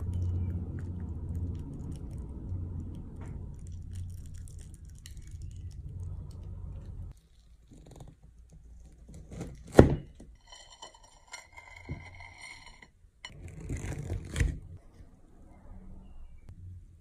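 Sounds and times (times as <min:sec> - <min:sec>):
fork scraping and clinking on plate: 0:10.4 - 0:13.4.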